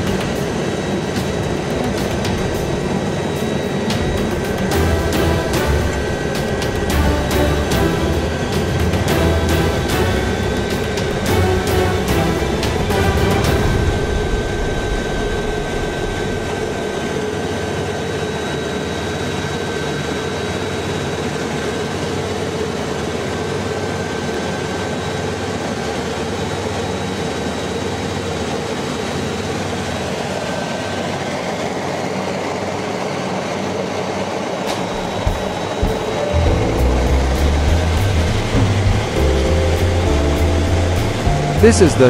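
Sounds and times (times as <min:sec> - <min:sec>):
high-pitched whine: 0:00.0 - 0:22.4, 0:34.5 - 0:42.0
helicopter rotor and turbine drone: 0:00.0 - 0:42.0.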